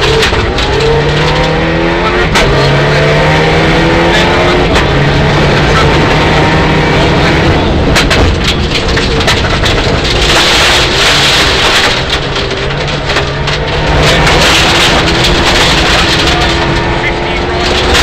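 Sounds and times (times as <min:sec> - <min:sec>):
sharp cracks and knocks: 0:00.0 - 0:02.8, 0:07.6 - 0:18.0
car engine running hard: 0:00.0 - 0:18.0.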